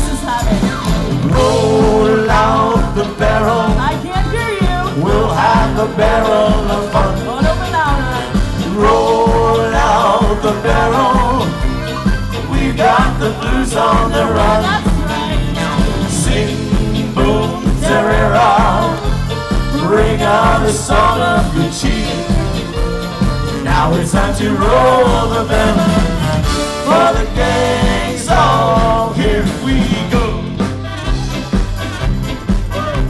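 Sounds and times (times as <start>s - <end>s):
live band music: 0.0s - 33.0s
person singing into a microphone: 1.3s - 11.6s.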